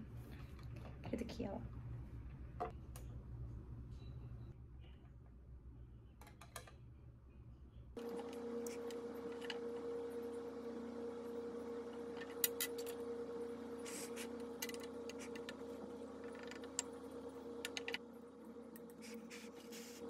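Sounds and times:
steady low hum: 6.8s - 20.0s.

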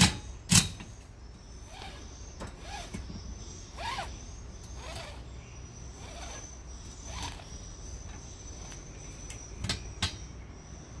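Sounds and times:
strap webbing rubbing: 1.6s - 3.1s, 3.7s - 5.3s, 6.0s - 7.6s.

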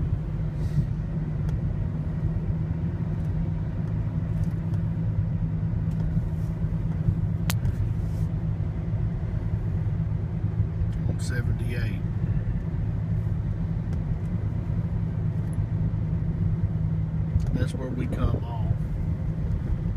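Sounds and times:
car road and engine rumble: 0.0s - 19.9s.

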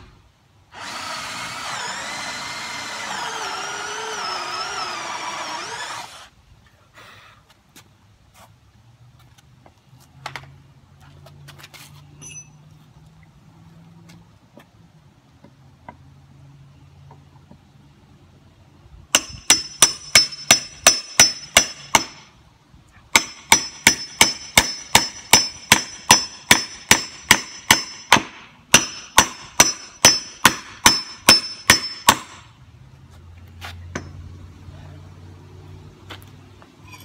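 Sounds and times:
hammer striking nail: 19.1s - 22.3s, 23.1s - 32.4s.

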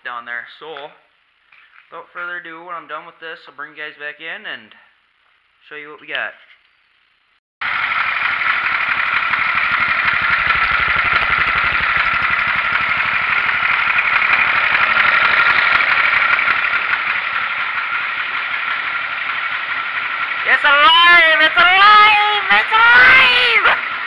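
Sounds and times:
garden tractor engine running: 7.6s - 24.0s.

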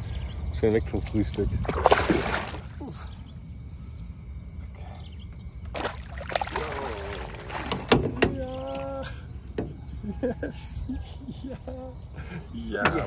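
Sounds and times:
fish splashing at water surface: 1.7s - 2.8s, 5.7s - 9.0s.

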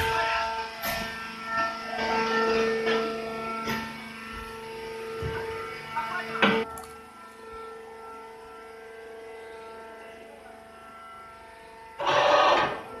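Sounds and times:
machinery motor hum: 0.0s - 13.0s.

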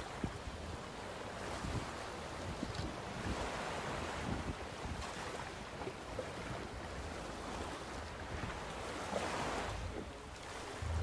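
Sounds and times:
water washing against hulls: 0.0s - 11.0s
wind rumbling on microphone: 0.0s - 11.0s.

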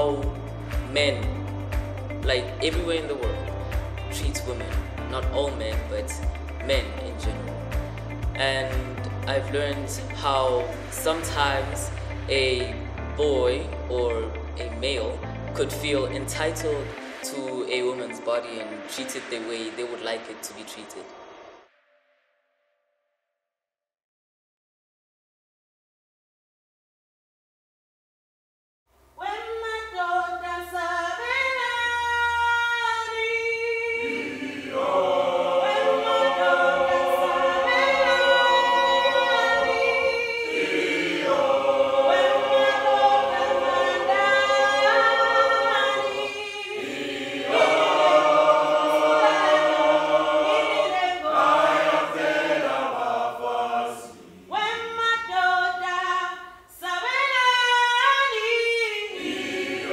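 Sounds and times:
choir singing a cappella: 0.0s - 14.4s, 29.3s - 59.9s.

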